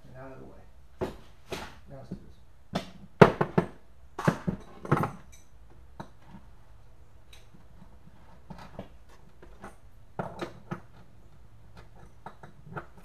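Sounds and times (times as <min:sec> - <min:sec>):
metal tools clinking on workbench: 0:04.5 - 0:05.6.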